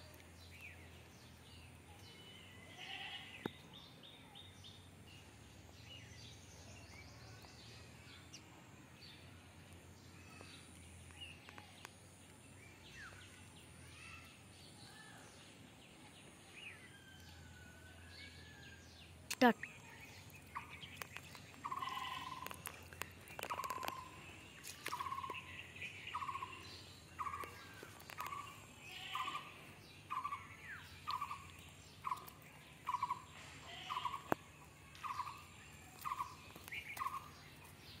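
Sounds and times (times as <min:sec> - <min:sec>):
higher bird chirps: 0:19.4 - 0:38.0.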